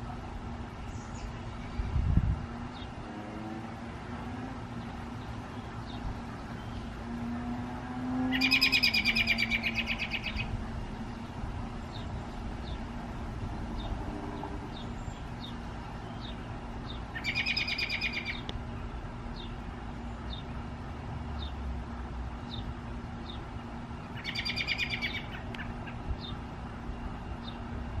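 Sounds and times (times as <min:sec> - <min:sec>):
steady low hum: 0:00.0 - 0:28.0
bird chattering calls: 0:08.3 - 0:10.5, 0:17.2 - 0:18.4, 0:24.1 - 0:26.0.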